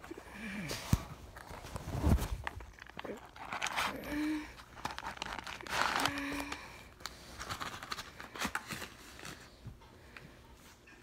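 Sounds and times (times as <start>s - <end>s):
packaging rustling and crinkling: 0.9s - 9.6s.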